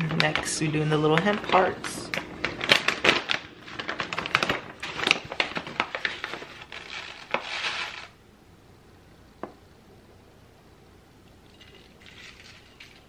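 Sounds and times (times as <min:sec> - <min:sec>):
plastic pouch crinkling: 0:01.1 - 0:08.2.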